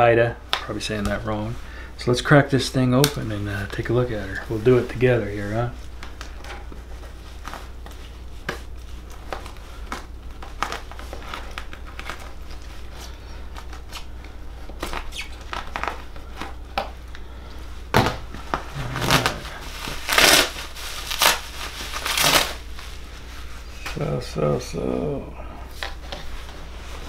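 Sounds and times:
plastic crinkling: 3.1s - 17.2s, 18.0s - 23.6s
packing tape ripping: 9.0s - 12.7s, 14.7s - 16.6s, 18.0s - 22.6s.

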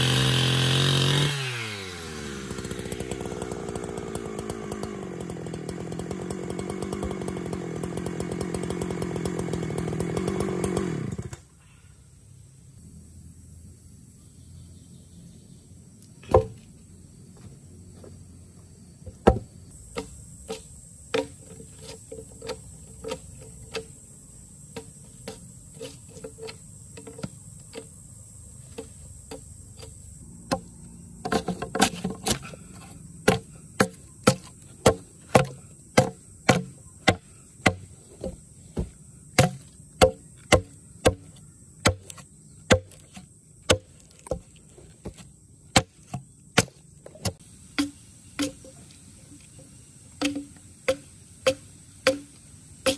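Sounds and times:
high insect drone: 0.0s - 52.9s
axe chopping wood: 16.3s - 16.6s, 19.2s - 23.9s, 28.7s - 32.6s, 33.2s - 48.7s, 50.2s - 52.9s.

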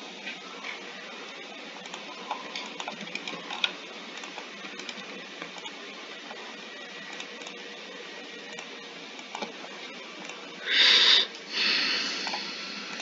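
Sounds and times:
mouse and keyboard clicks: 1.8s - 5.8s.

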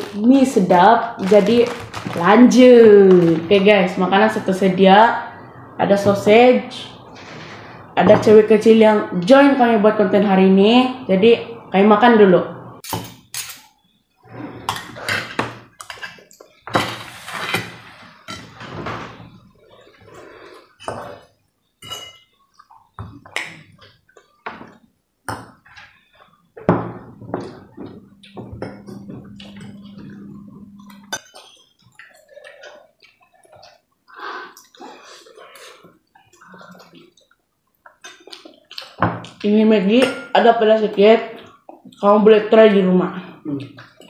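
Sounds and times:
forks clinking on plates: 21.8s - 22.3s
slurping and chewing: 31.2s - 39.0s.

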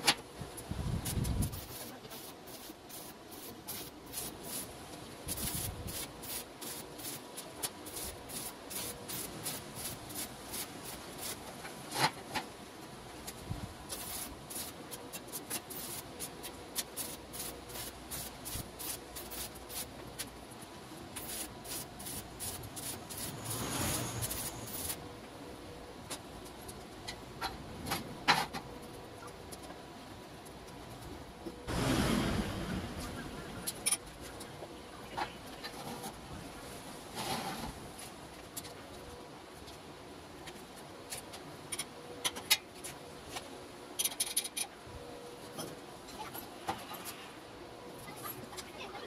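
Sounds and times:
arc welding crackle: 0.6s - 12.1s, 13.2s - 20.4s, 21.1s - 25.0s.

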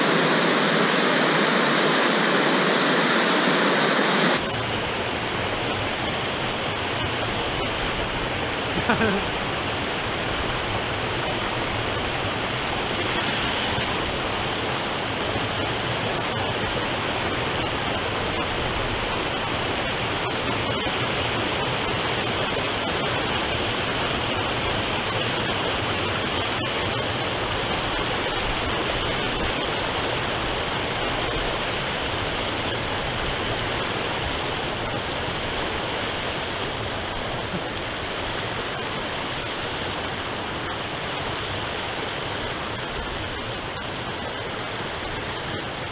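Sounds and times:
river rapids roaring: 0.0s - 45.9s.

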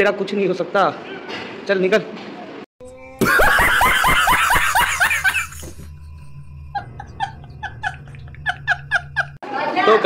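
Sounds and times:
man laughing hard: 3.2s - 5.8s, 6.8s - 9.4s.

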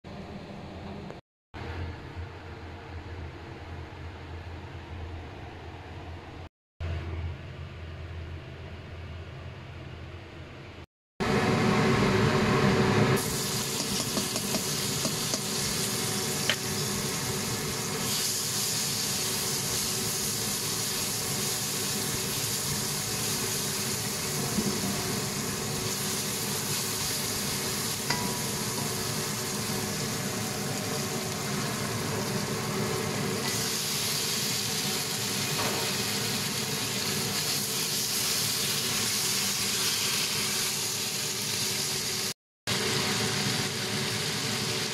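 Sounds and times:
food sizzling in a wok: 13.1s - 44.9s.

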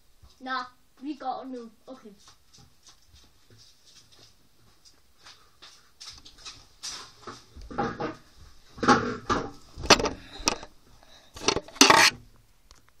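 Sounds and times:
objects knocking and clattering: 6.4s - 10.7s, 11.4s - 12.2s.

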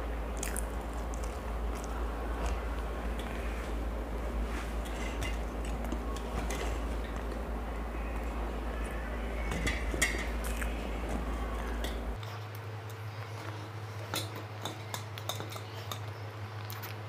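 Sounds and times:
steady low hum: 0.0s - 17.0s
chewing food: 0.3s - 3.6s, 10.4s - 17.0s.

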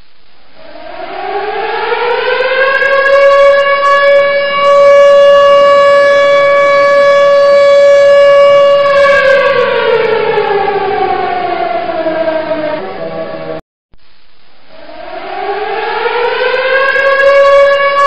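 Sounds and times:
siren wailing: 0.5s - 13.6s, 14.7s - 18.0s.

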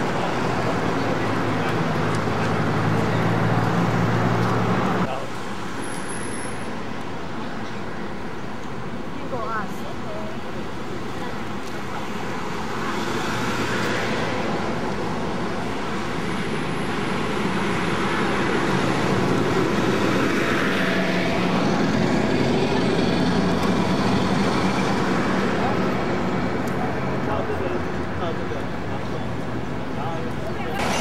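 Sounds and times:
vehicles passing: 0.0s - 31.0s
heavy engine hum: 14.4s - 31.0s.

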